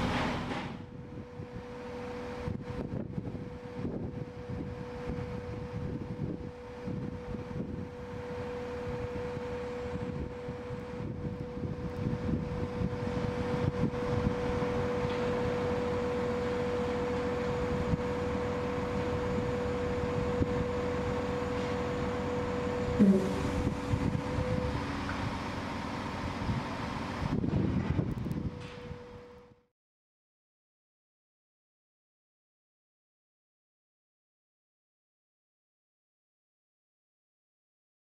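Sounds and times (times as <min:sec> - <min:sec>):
crane engine whine and rumble: 0:00.0 - 0:29.7.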